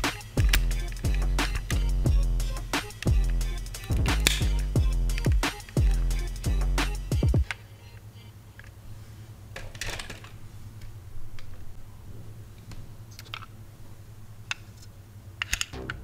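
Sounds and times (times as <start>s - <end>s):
low steady hum: 0.0s - 9.5s
toy cars clicking and tapping: 15.4s - 15.8s.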